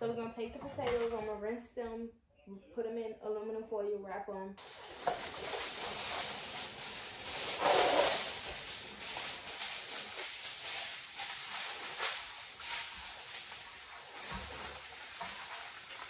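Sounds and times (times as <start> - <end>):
aluminum foil crinkling: 4.6 - 16.0.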